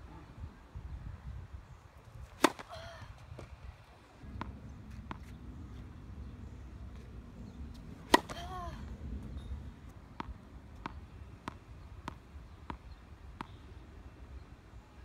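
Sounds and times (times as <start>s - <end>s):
tennis ball bouncing on court: 2.4s - 2.7s, 4.3s - 5.4s, 7.7s - 8.6s, 10.1s - 13.8s.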